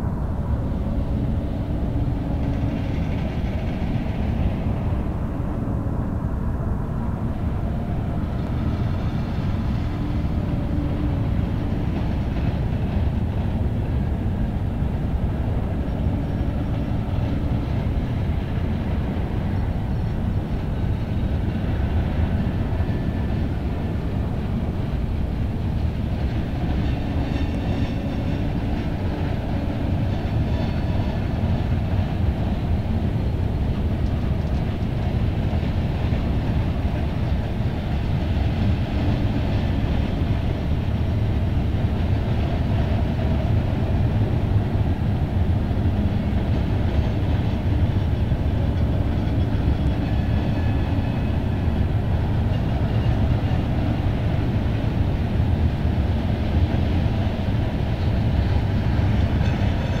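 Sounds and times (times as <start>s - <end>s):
freight train cars rumbling: 0.0s - 60.0s.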